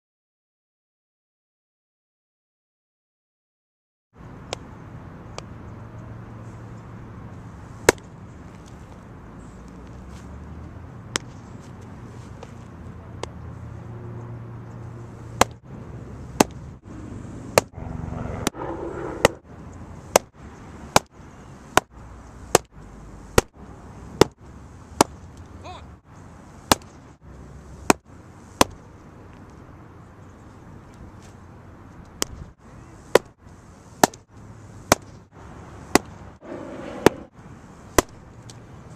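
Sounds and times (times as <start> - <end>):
baseball smacking into mitt: 11.1 - 11.4, 26.7 - 26.9, 34.9 - 35.1, 38.0 - 38.2.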